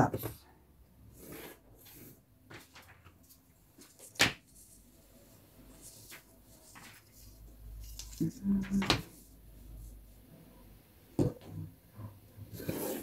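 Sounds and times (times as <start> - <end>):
paper rustling: 1.8 - 4.9, 5.6 - 10.0.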